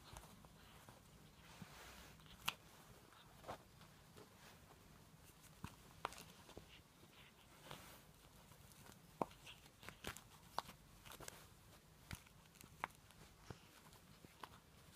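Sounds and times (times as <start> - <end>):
kitten claws scrabbling on fabric: 5.2 - 14.9.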